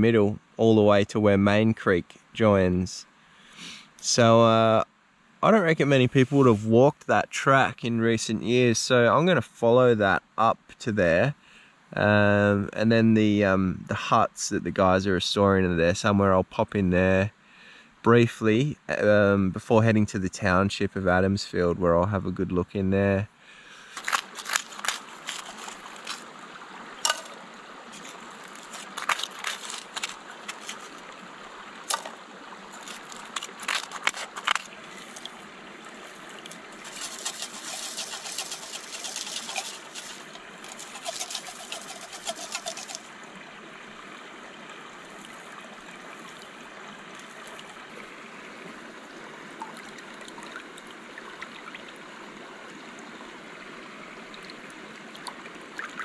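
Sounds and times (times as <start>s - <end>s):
creek running: 5.4s - 11.2s, 18.2s - 56.0s
stones clinking and scraping: 23.9s - 26.3s, 27.0s - 31.0s, 31.8s - 35.4s, 36.4s - 43.1s.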